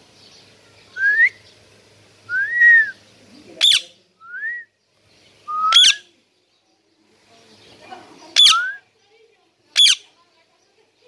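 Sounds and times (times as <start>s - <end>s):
parakeet screeching: 3.6s - 3.9s, 5.7s - 6.0s, 8.4s - 8.8s, 9.8s - 10.1s
parakeet whistling: 5.5s - 6.0s, 8.4s - 8.8s.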